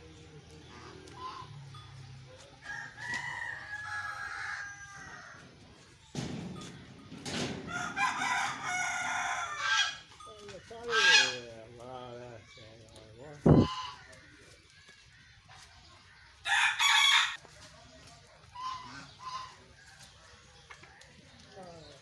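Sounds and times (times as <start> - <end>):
farmyard fowl calling: 0.6 - 2.0, 7.6 - 11.7, 13.2 - 14.6, 16.4 - 17.4, 18.4 - 20.4.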